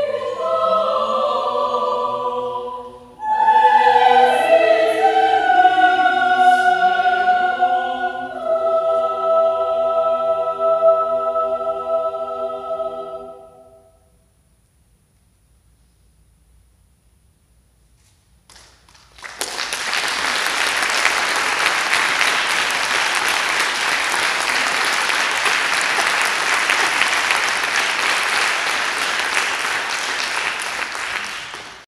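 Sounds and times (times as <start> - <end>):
audience applause: 18.9 - 31.9.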